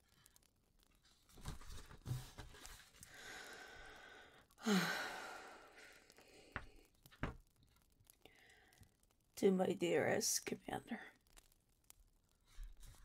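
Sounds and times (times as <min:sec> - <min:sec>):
woman breathing in and sighing: 0:03.0 - 0:06.9, 0:08.2 - 0:09.0.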